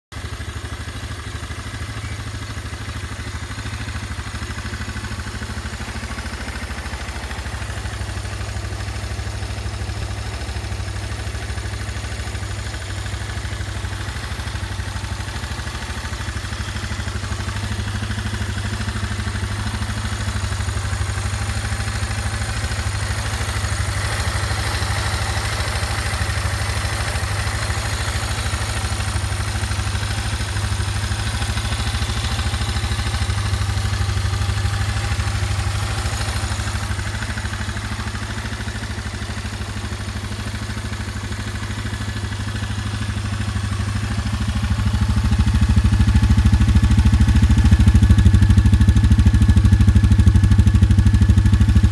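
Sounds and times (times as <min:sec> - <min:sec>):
atv engine idling: 0:00.1 - 0:51.9.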